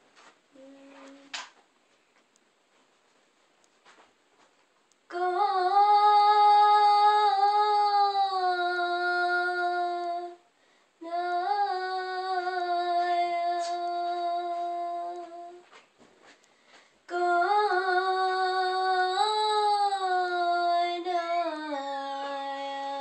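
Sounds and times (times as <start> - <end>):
girl singing without words: 0.5 - 1.4, 5.0 - 15.8, 17.1 - 23.0.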